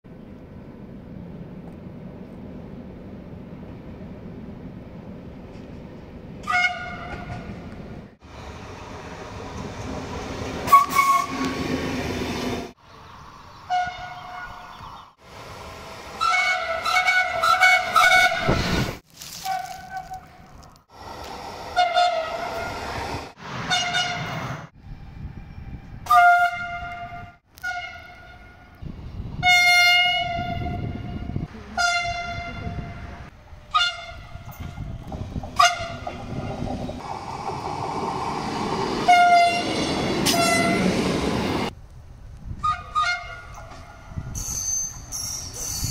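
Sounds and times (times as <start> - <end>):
rumble of passing trains: 0.1 - 19.0, 19.8 - 45.9
train horn blasts: 10.7 - 11.5, 13.7 - 14.6, 16.2 - 18.6, 21.7 - 22.8, 23.7 - 24.4, 26.0 - 28.8, 29.4 - 32.9, 33.7 - 34.4, 35.6 - 36.2, 39.0 - 41.0, 42.6 - 43.7.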